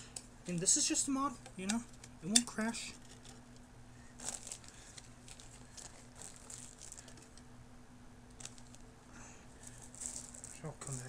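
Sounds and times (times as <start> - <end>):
steady low hum: 0.0 - 11.0
plastic packaging rustling: 2.9 - 7.5, 8.3 - 8.9, 9.5 - 11.0.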